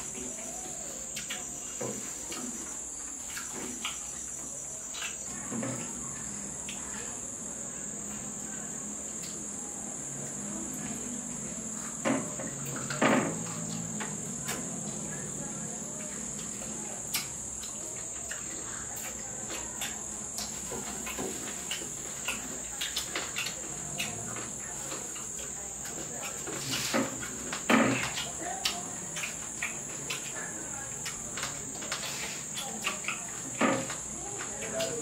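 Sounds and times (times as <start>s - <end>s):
crickets chirping: 0.0s - 35.0s
eating clicks and smacks: 1.0s - 5.4s, 16.0s - 35.0s.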